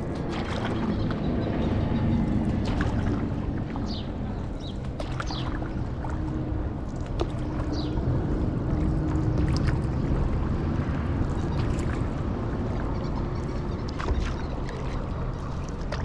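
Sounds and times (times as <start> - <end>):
paddle dipping in water: 0.0 - 16.0
steady low rumble: 0.0 - 16.0
water splashing and trickling: 0.0 - 16.0.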